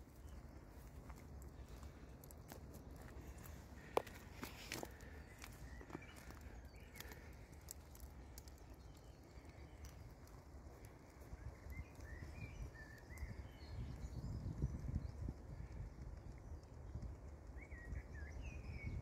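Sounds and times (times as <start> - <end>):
footsteps on twigs: 0.0 - 11.2
bird chirps: 0.1 - 15.3.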